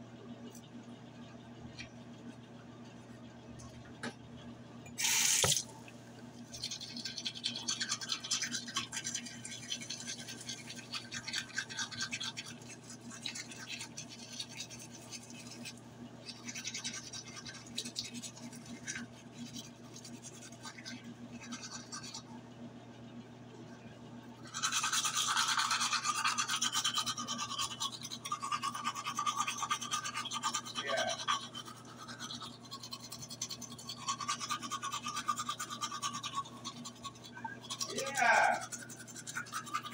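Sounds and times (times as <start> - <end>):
toothbrush scrubbing teeth: 6.4 - 22.3, 24.4 - 39.9.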